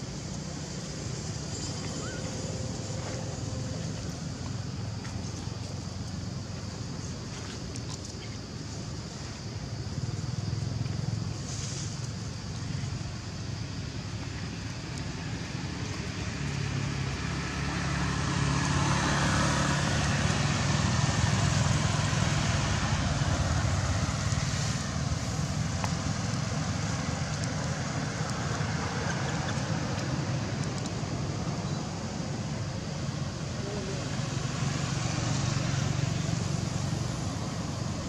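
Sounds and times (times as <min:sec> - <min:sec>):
road traffic hum: 0:00.0 - 0:38.0
vehicle passing by: 0:15.4 - 0:32.4, 0:33.1 - 0:38.0.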